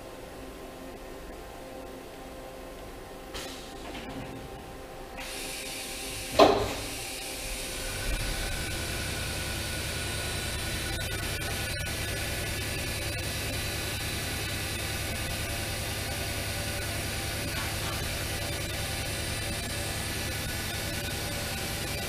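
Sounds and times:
machine hum and hiss: 0:00.0 - 0:22.0
sharp mechanical clunk: 0:06.3 - 0:07.0.

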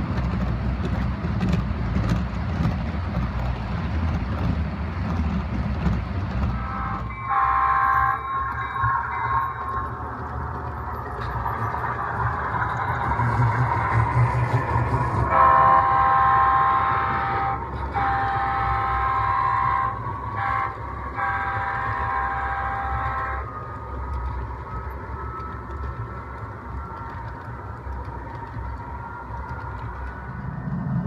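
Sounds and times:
low rumble of passing train: 0:00.0 - 0:31.0
model train horn blasts: 0:06.6 - 0:08.4, 0:15.3 - 0:23.4.

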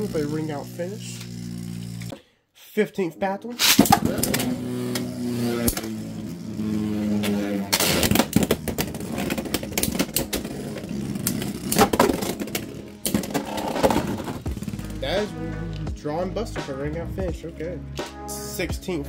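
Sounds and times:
spinning tops whirring: 0:00.0 - 0:02.2, 0:03.6 - 0:15.3.

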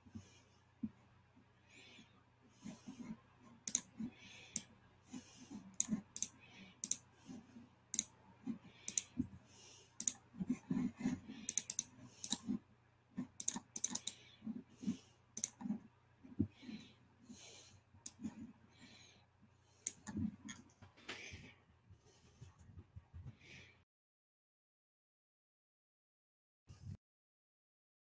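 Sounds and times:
keyboard and mouse clicking: 0:03.7 - 0:03.9, 0:05.7 - 0:07.0, 0:08.8 - 0:09.2, 0:10.0 - 0:10.2, 0:11.4 - 0:12.5, 0:13.2 - 0:14.2, 0:15.4 - 0:15.7, 0:19.9 - 0:20.6.

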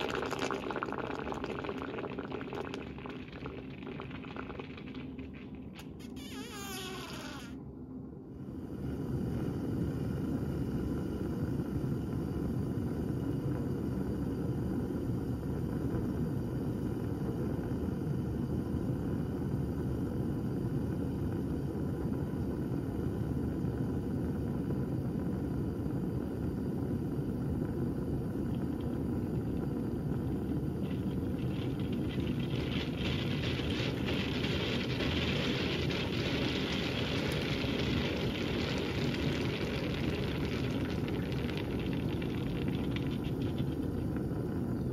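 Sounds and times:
crackling hiss of boiling water: 0:00.0 - 0:07.6, 0:08.2 - 0:44.9.

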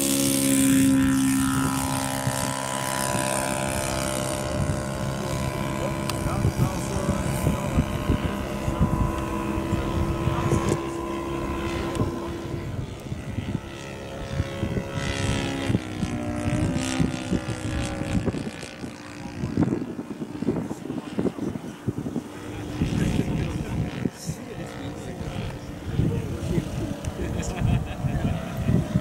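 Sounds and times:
model plane engine flying overhead: 0:00.0 - 0:29.0.

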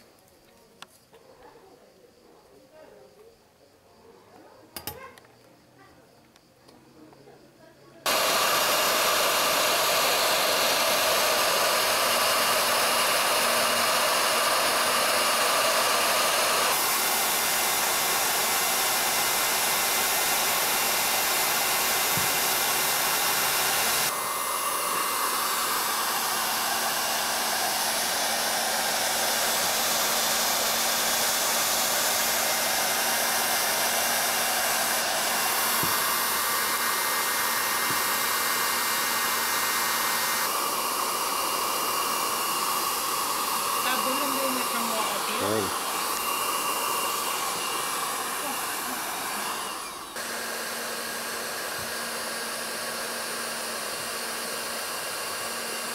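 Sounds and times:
hot air gun blowing: 0:08.1 - 0:55.9.

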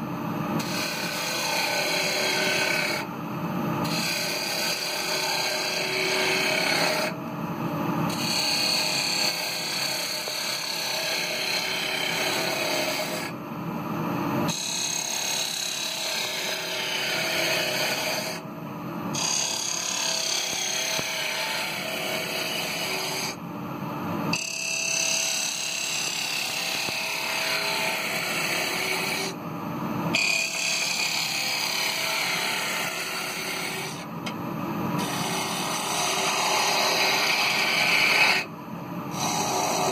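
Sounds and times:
gouge cutting wood: 0:00.6 - 0:03.0, 0:30.2 - 0:34.0, 0:35.0 - 0:38.5, 0:39.1 - 0:39.9
wood lathe humming: 0:00.6 - 0:03.0, 0:03.9 - 0:07.1, 0:30.2 - 0:34.4, 0:35.0 - 0:38.4, 0:39.1 - 0:39.9.

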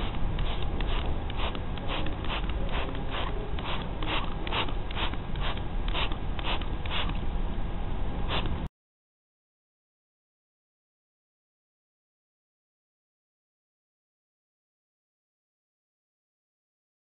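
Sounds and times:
spray bottle squirts hissing: 0:00.0 - 0:07.2, 0:08.3 - 0:08.6.

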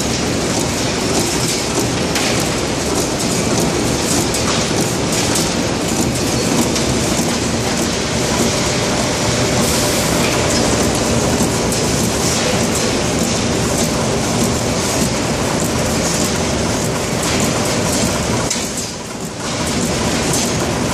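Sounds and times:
packaging machine clattering: 0:00.0 - 0:08.5.

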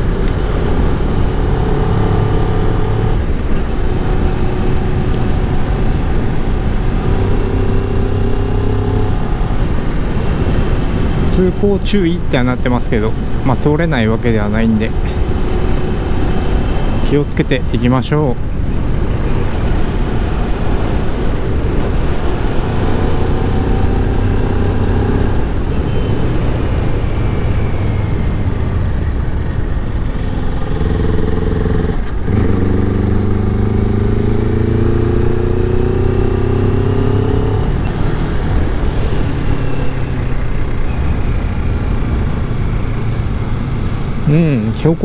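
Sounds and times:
wind and road noise: 0:00.0 - 0:45.0.

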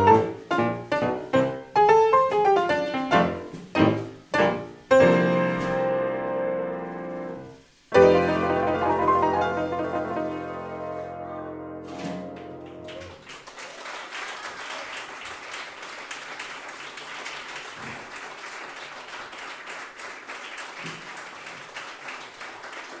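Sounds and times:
piano chord ringing: 0:00.0 - 0:13.1
audience applauding: 0:12.3 - 0:23.0.

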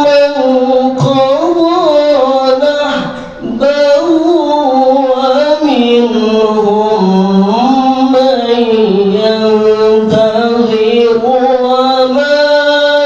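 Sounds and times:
man chanting melodically: 0:00.0 - 0:13.0
quick breath: 0:03.1 - 0:03.4.

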